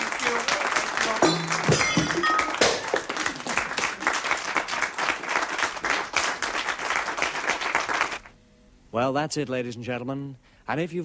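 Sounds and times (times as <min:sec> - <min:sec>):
many hands clapping: 0:00.0 - 0:08.3.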